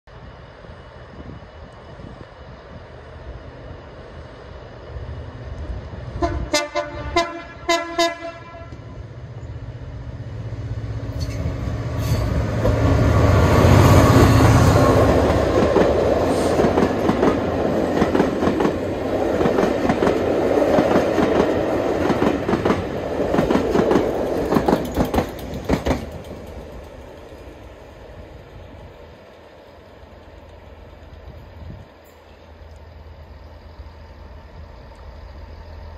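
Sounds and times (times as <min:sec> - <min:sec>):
locomotive engine passing: 0:00.3 - 0:35.9
train horn toots: 0:06.1 - 0:09.0
train wheels clickety-clack: 0:11.1 - 0:33.0.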